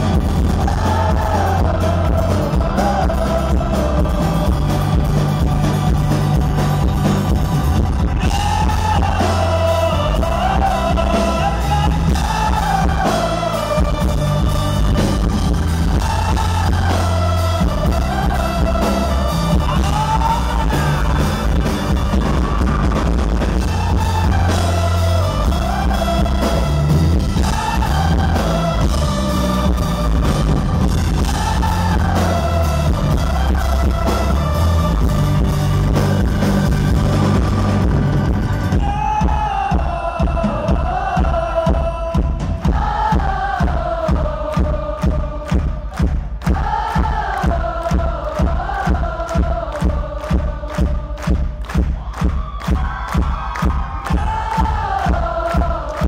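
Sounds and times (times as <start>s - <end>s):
live rock band playing: 0.0s - 43.8s
person singing: 0.0s - 51.4s.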